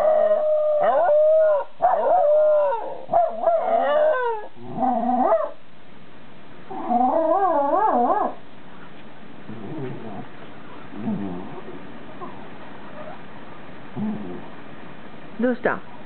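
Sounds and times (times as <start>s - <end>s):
dogs howling and yipping: 0.0s - 5.6s, 6.7s - 8.4s.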